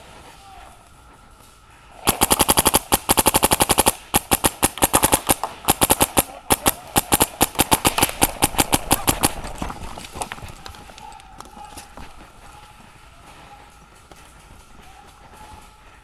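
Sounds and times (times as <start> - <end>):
paintball marker rapid firing: 2.0 - 10.6.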